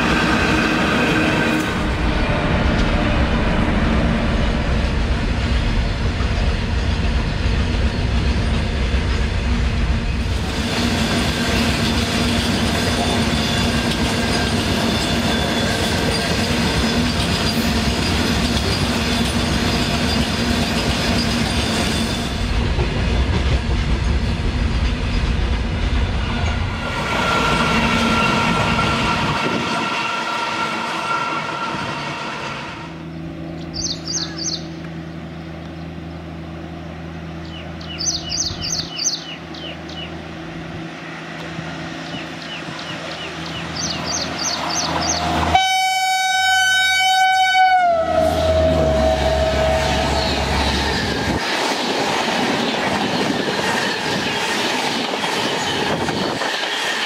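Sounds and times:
freight train rumble: 0:00.0 - 0:57.0.

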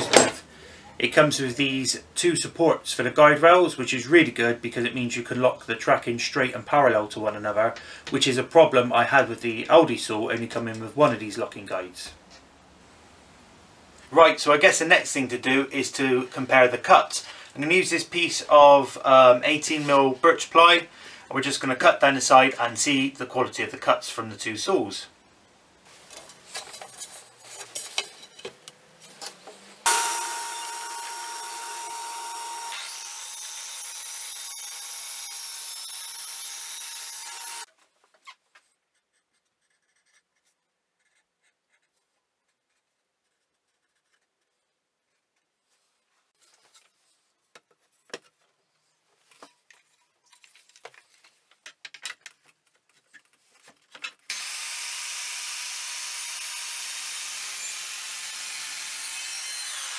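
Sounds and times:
track saw cutting plywood: 0:29.9 - 0:37.7, 0:54.3 - 0:59.9.

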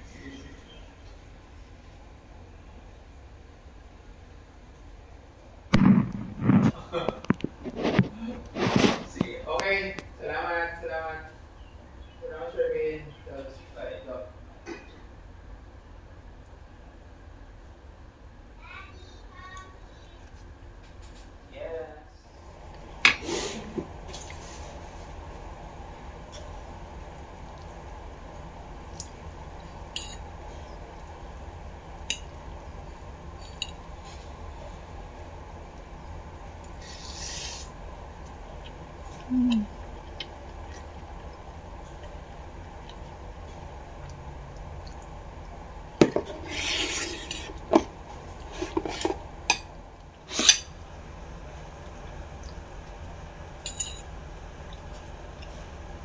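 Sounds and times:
steady low hum: 0:00.0 - 0:56.0
fork scraping plate: 0:07.6 - 0:09.2, 0:36.8 - 0:37.7, 0:46.3 - 0:47.8, 0:48.4 - 0:49.2
metal fork clinking on plate: 0:53.6 - 0:54.1.

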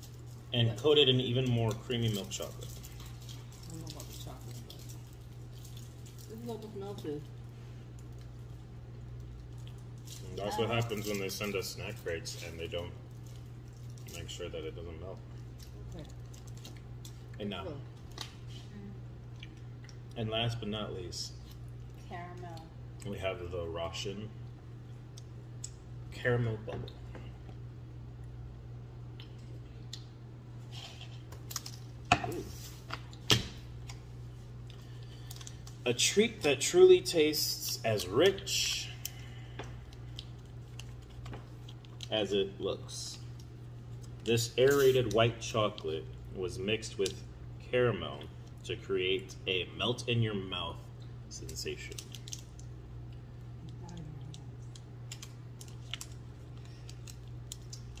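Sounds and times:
wrapper crackling: 0:00.0 - 0:07.2, 0:09.2 - 0:14.4, 0:51.4 - 0:52.7, 0:54.6 - 0:58.0
steady low hum: 0:00.0 - 0:58.0.

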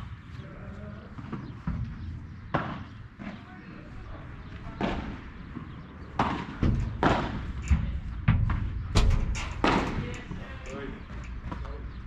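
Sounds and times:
padel rackets striking ball: 0:01.2 - 0:03.4, 0:04.8 - 0:08.9, 0:09.6 - 0:10.4.

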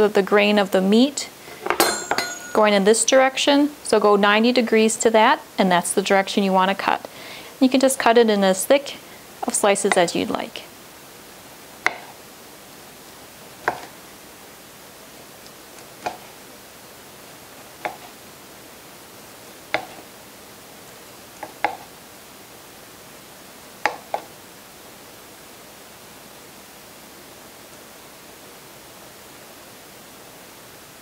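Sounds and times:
knife tapping plastic cutting board: 0:11.8 - 0:12.1, 0:13.6 - 0:13.9, 0:16.0 - 0:16.3, 0:17.8 - 0:18.1, 0:19.7 - 0:20.0, 0:21.4 - 0:21.9, 0:23.8 - 0:24.3
knife slicing meat: 0:19.7 - 0:20.1.

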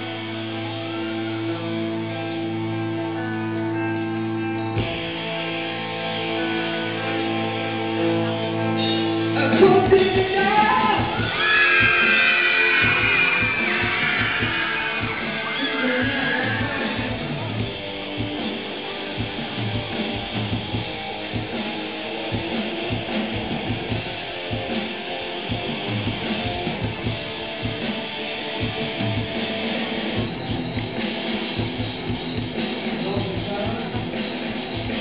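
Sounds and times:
electric guitars: 0:00.0 - 0:35.0
drum kit beat: 0:09.6 - 0:35.0.

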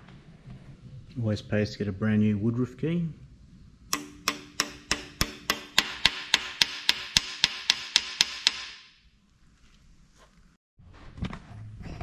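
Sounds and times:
hammer tapping metal: 0:03.9 - 0:08.9.

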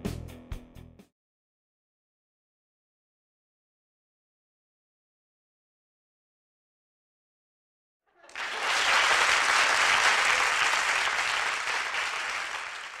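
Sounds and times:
crowd applause: 0:08.1 - 0:13.0.

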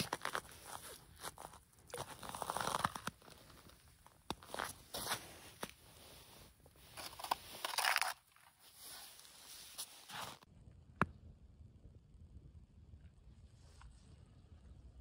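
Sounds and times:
jacket fabric rustling: 0:00.0 - 0:10.5
rustling and crinkling: 0:00.0 - 0:10.5
faint low rumble: 0:09.2 - 0:15.0.

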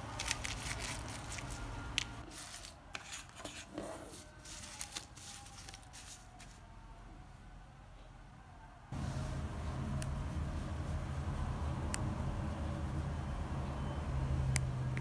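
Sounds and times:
paper strips rustling: 0:00.0 - 0:06.6.

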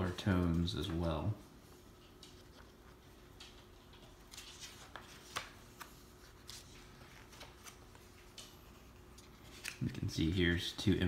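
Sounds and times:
faint steady hum: 0:00.0 - 0:11.0
book pages turning: 0:02.0 - 0:10.7.

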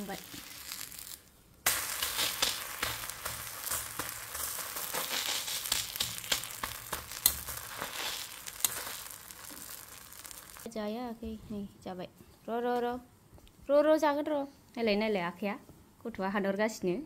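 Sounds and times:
flatbread sizzling on griddle: 0:00.0 - 0:10.7
steel spatula pressing: 0:01.7 - 0:09.2.

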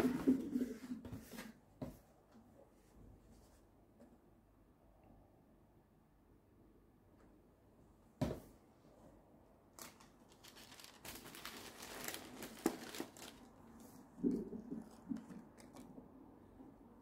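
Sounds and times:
tissue paper rustling: 0:09.8 - 0:14.0.

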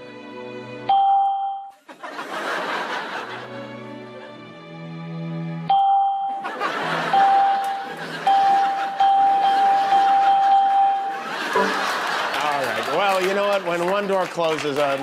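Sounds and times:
computer alert chime: 0:00.9 - 0:01.7, 0:05.7 - 0:06.4, 0:07.2 - 0:12.0
audience laughing: 0:01.7 - 0:04.5, 0:06.3 - 0:15.0.

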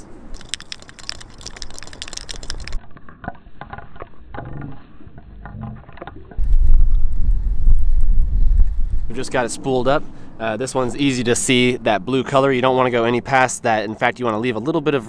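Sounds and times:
spool spinning rattling clicks: 0:00.4 - 0:02.8
wind buffeting microphone: 0:06.4 - 0:12.2.

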